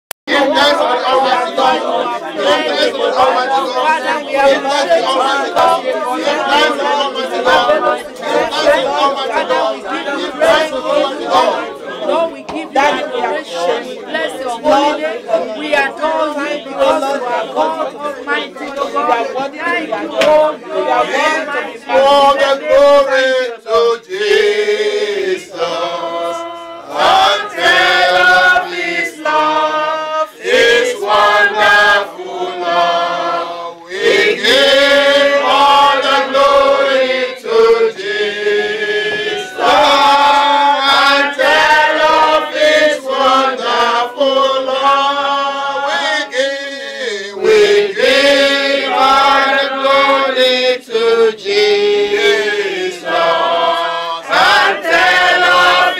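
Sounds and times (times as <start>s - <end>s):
group singing unaccompanied: 0.3s - 55.9s.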